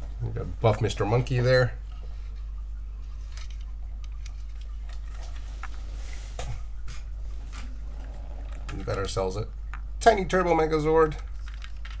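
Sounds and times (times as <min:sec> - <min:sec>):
steady low hum: 0:00.0 - 0:12.0
plastic toys clicking and clattering: 0:11.1 - 0:12.0.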